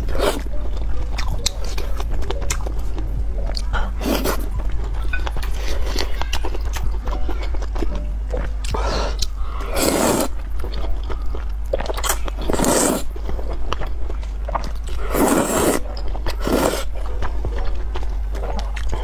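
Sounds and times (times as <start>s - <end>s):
chewing: 0.0s - 19.0s
noodles being slurped: 9.6s - 10.3s, 12.0s - 13.1s, 14.9s - 16.9s.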